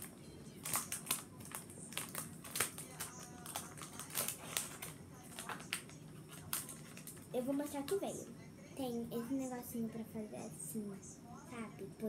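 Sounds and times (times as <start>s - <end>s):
plastic packet crinkling: 0.0s - 8.1s.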